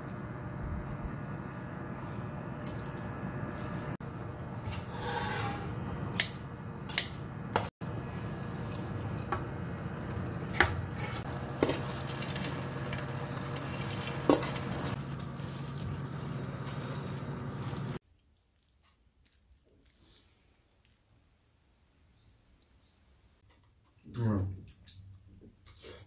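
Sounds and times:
wet squishing of stirred food: 10.5s - 16.2s.

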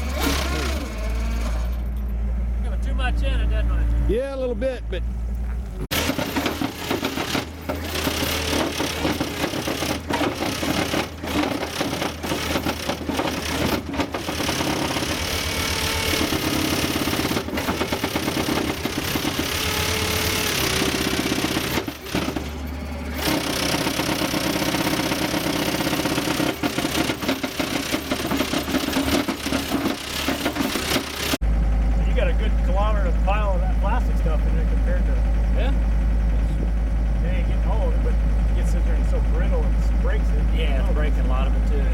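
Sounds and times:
skid steer loader running: 0.0s - 41.9s
rocks rattling against steel grate: 5.9s - 15.6s, 23.2s - 31.4s.

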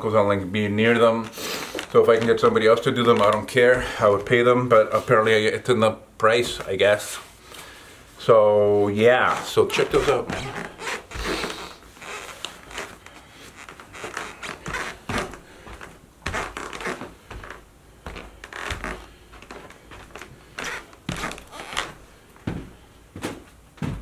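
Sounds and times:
boots walking on wooden floor: 9.3s - 24.0s.

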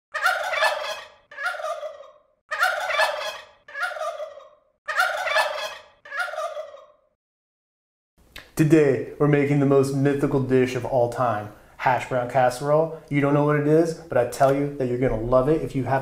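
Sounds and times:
turkey gobbling: 0.1s - 7.2s.

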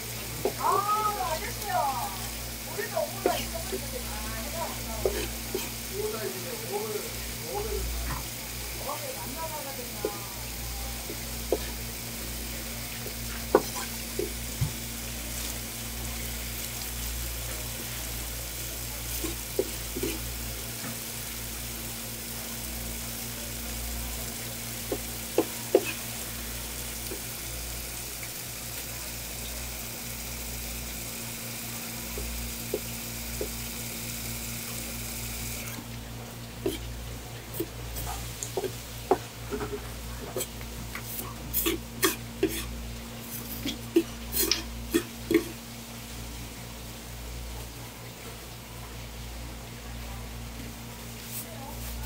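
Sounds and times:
water hissing from hose nozzle: 0.0s - 35.9s, 36.6s - 45.6s
knife knocking on cutting board: 13.5s - 14.8s, 24.9s - 26.0s.

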